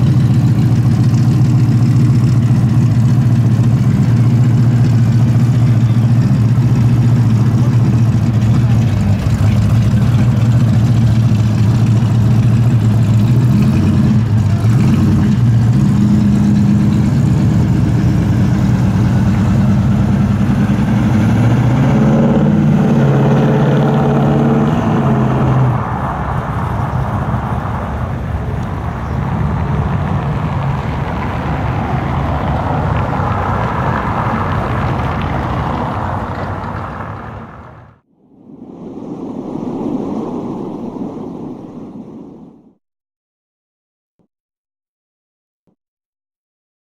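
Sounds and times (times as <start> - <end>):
car engine and exhaust running: 0.0 - 38.0
steady rushing noise: 14.2 - 42.8.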